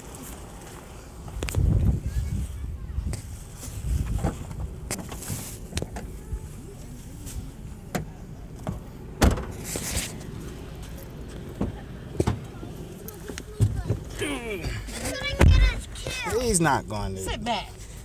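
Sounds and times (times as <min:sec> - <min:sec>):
steady low rumble: 0:00.1 - 0:14.2.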